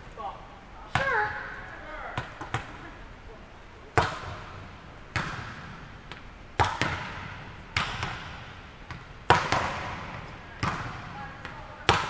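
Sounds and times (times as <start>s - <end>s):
volleyballs smacking on court: 2.2s - 2.8s, 3.9s - 12.0s.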